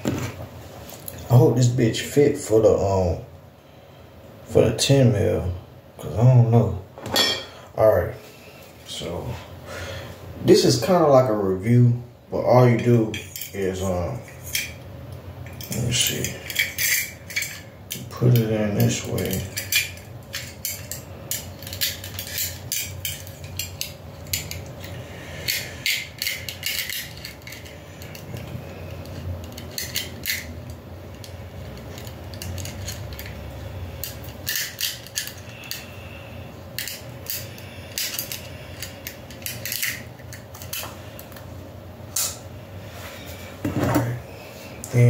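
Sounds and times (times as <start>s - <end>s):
low steady hum: 0.0s - 45.0s
metal parts clicking and clinking: 15.4s - 35.9s, 36.7s - 41.4s.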